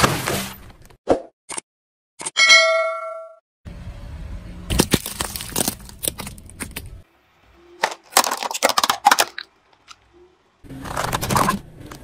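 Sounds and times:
tyre crushing plastic sticks: 4.7s - 7.0s, 7.8s - 10.0s
plastic tub crackling and snapping: 7.8s - 10.0s.

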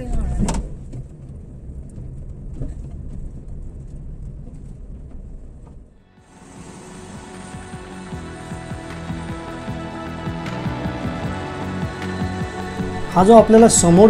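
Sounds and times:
vehicle driving on paved road: 0.0s - 9.1s.

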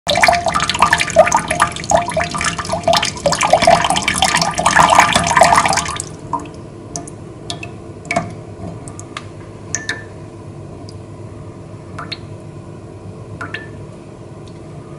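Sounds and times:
water running and splashing: 0.1s - 6.5s
water dripping: 0.1s - 10.1s, 12.0s - 12.4s, 13.4s - 13.8s.

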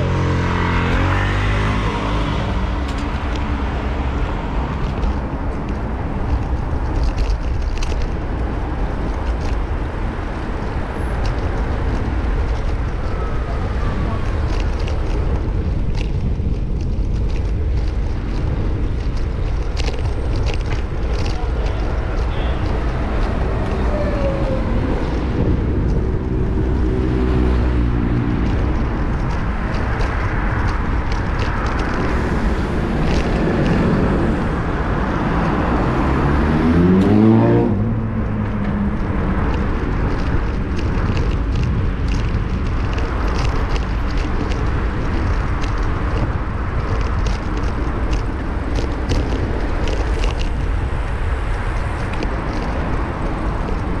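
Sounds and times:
road noise rumble: 0.0s - 54.0s
vehicle engine speeding past: 35.6s - 38.6s.

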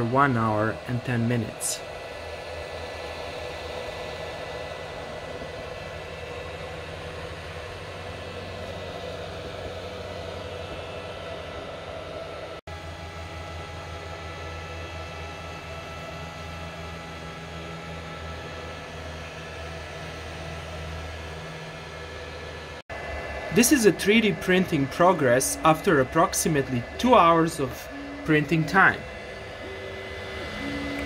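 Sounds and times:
printer fans and motors whirring: 0.0s - 31.0s
faint steady tones: 23.0s - 31.0s.

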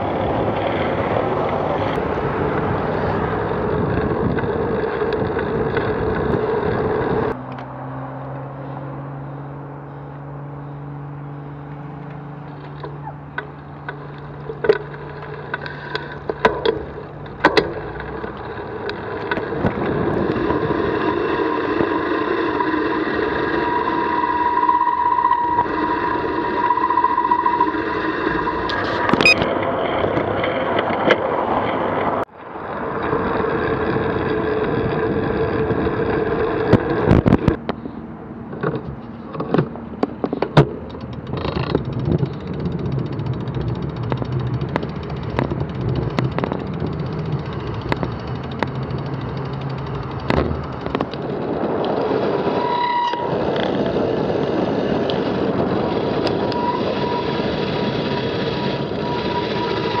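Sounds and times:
wind noise: 0.0s - 7.4s, 14.0s - 60.0s
tyre noise: 0.0s - 7.6s, 12.0s - 60.0s
cars passing: 0.0s - 60.0s
sharp clicks and knocks: 12.0s - 20.5s, 38.5s - 52.0s.

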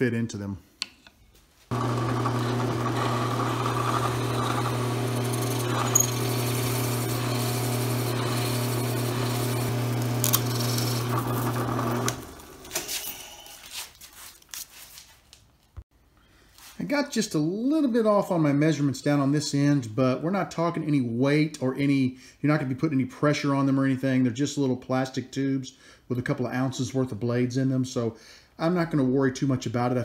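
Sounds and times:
drill press motor boring acrylic: 1.7s - 13.4s.

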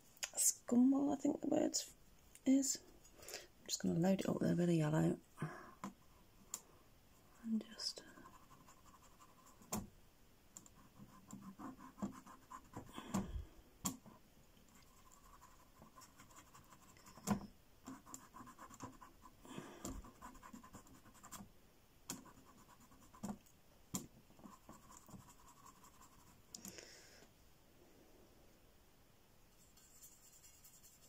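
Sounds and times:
paintbrush scratching and scrubbing: 29.5s - 31.0s.

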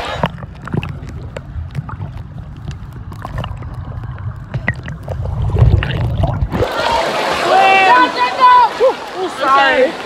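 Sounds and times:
muffled underwater water rumble: 0.0s - 7.0s.

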